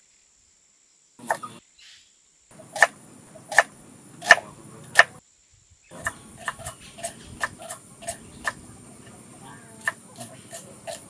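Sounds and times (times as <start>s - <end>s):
knife chopping on wooden board: 2.6s - 5.2s, 6.0s - 9.2s, 9.8s - 11.0s.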